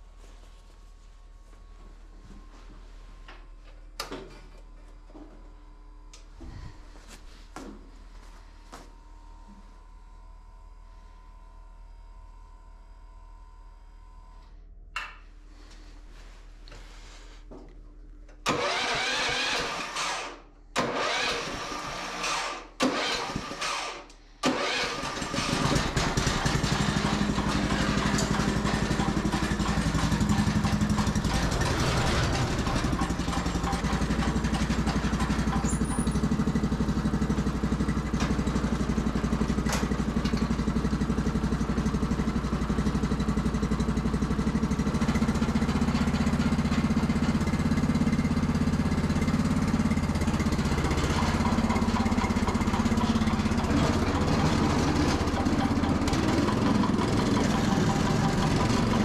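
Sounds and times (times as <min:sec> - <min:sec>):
tractor engine running: 0:18.3 - 0:59.0
starter motor cranking: 0:18.4 - 0:37.3, 0:50.0 - 0:59.0.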